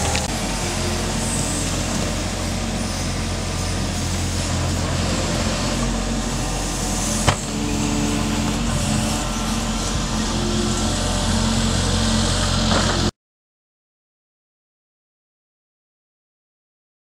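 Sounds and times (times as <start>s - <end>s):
excavator diesel engine running: 0.0s - 13.1s.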